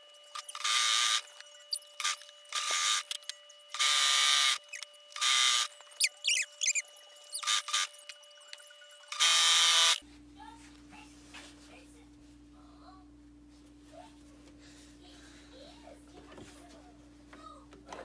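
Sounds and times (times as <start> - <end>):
high chirping squeaks: 5.6 - 9.2.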